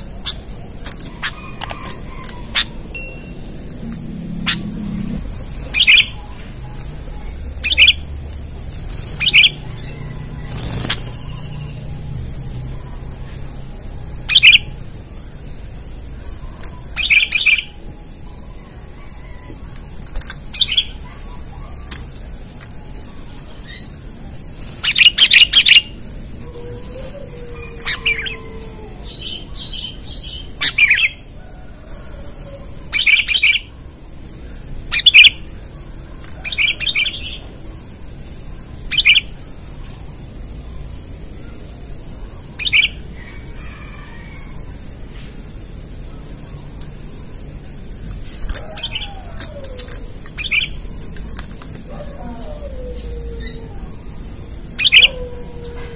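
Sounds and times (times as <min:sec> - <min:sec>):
bird giving sharp calls: 0:09.2 - 0:11.9, 0:53.4 - 0:55.2.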